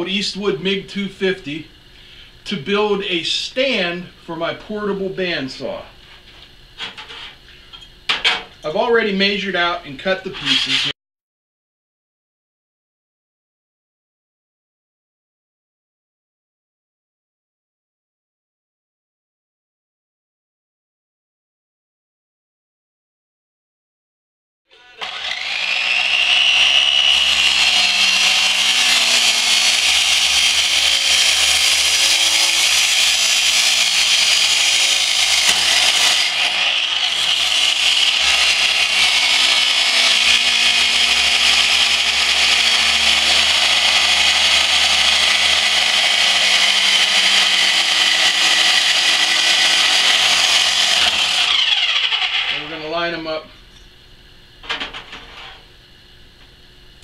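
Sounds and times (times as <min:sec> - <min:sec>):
chop saw cutting steel: 0:10.3 - 0:10.9, 0:24.8 - 0:52.8.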